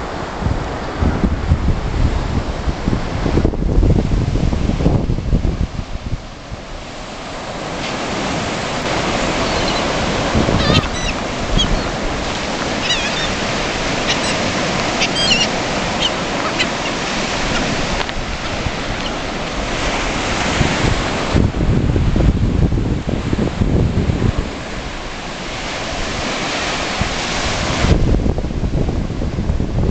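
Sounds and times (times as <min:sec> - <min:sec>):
surf breaking on beach: 0:00.0 - 0:29.9
wind buffeting microphone: 0:00.0 - 0:29.9
gulls calling: 0:08.6 - 0:20.0.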